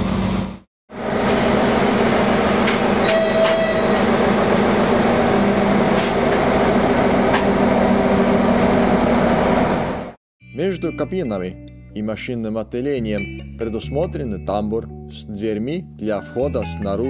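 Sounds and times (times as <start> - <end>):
diesel locomotive engine running: 0.0 - 10.2.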